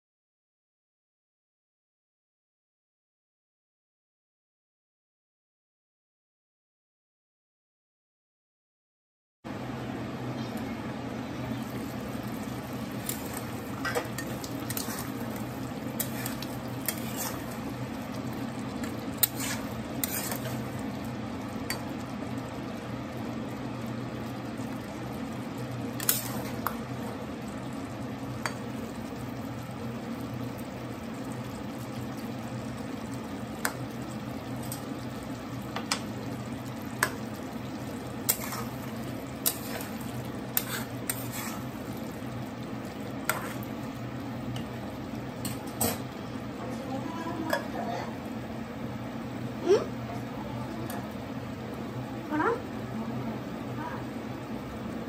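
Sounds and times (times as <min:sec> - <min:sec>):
food sizzling in a pan: 0:09.5 - 0:55.0
metal spatula clinking and scraping: 0:13.0 - 0:15.4, 0:16.0 - 0:17.7, 0:18.9 - 0:20.7, 0:38.3 - 0:38.8, 0:39.4 - 0:41.7, 0:43.3 - 0:43.6, 0:45.4 - 0:46.0.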